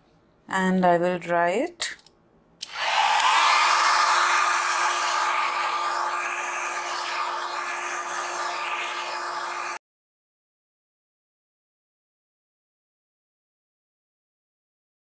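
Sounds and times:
electric dryer blowing air: 2.6 - 9.8.

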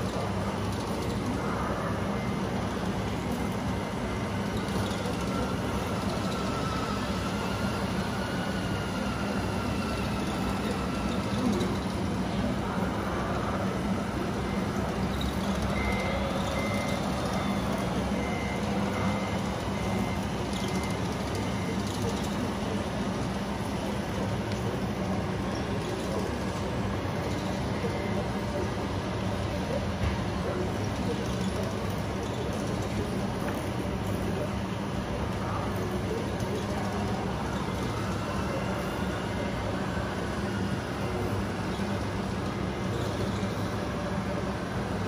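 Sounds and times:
reversing beeper: 3.8 - 11.6, 13.9 - 21.9.

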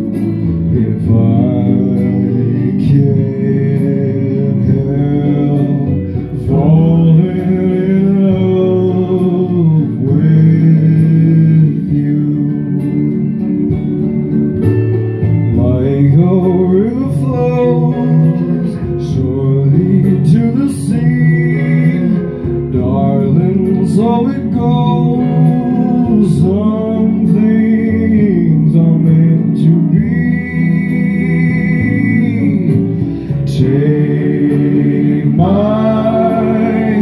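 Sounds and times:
man singing into microphone: 0.0 - 13.8, 15.5 - 37.0
backing track with guitar: 0.0 - 37.0.

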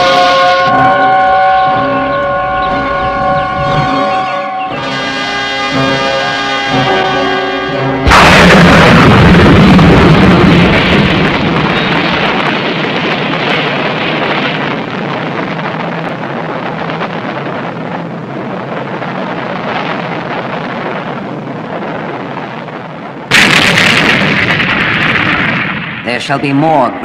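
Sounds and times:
rumbling roar of blast: 0.0 - 22.4, 23.3 - 27.0
loud explosion: 6.8 - 27.0.

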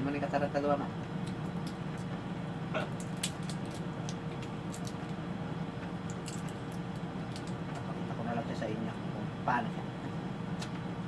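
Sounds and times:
crab shell crackling: 2.9 - 5.2, 6.0 - 7.7.

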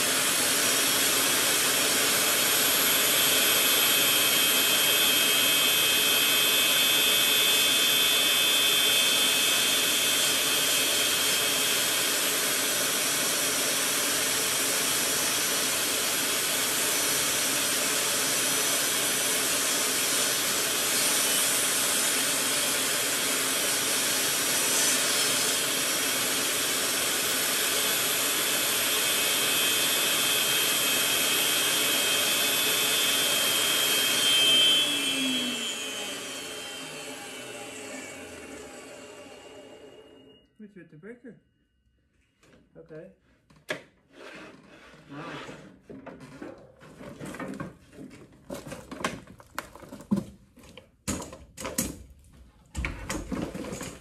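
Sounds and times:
saw motor spinning down: 0.0 - 40.4
table saw cutting wood: 0.0 - 40.4.

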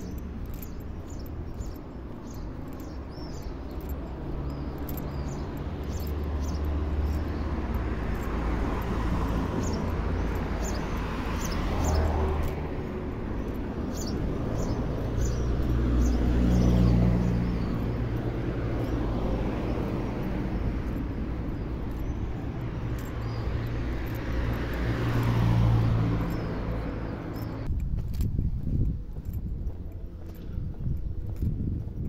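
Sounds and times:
small birds chirping: 0.0 - 27.7
car passing by: 4.4 - 13.2, 22.6 - 27.7.

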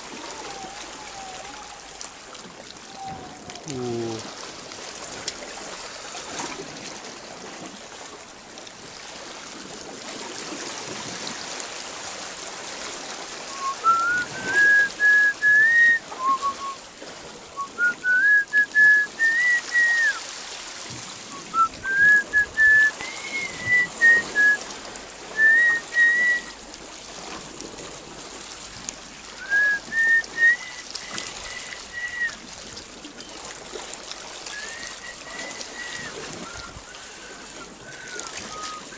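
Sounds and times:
water lapping among rocks: 0.0 - 38.9
person whistling a tune: 13.5 - 16.8, 17.6 - 20.2, 21.3 - 24.6, 25.4 - 26.6, 29.4 - 32.4, 34.5 - 38.9.

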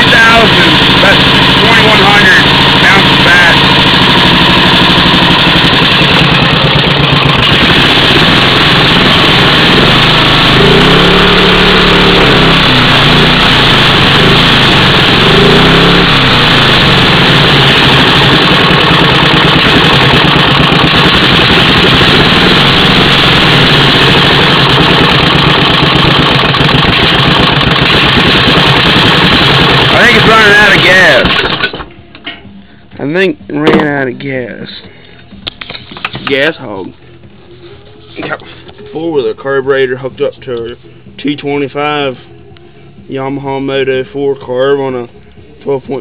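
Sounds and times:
lawnmower engine running: 0.0 - 32.0.

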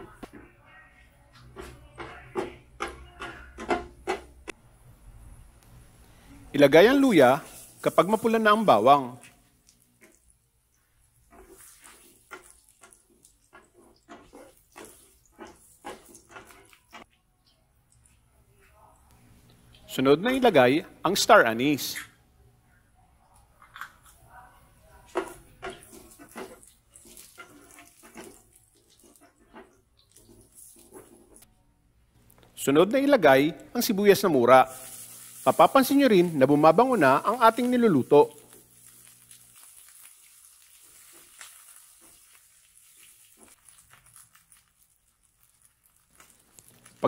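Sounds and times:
oil sizzling: 5.6 - 17.1, 25.0 - 31.5, 32.2 - 47.0
vegetables sizzling in oil: 6.6 - 9.9, 34.0 - 47.0
spatula scraping a frying pan: 11.2 - 17.1, 25.1 - 31.5.

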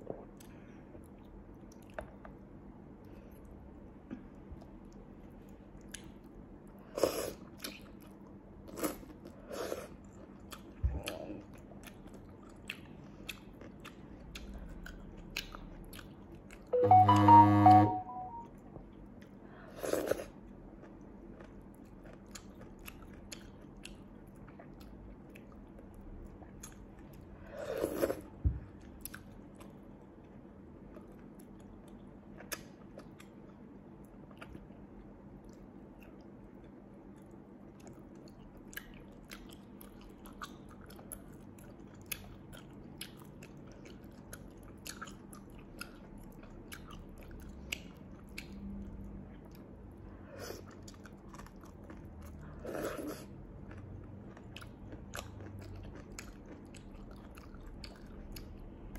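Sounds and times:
loud pitched sound: 16.8 - 18.5
sea snails being chewed: 50.6 - 58.9.

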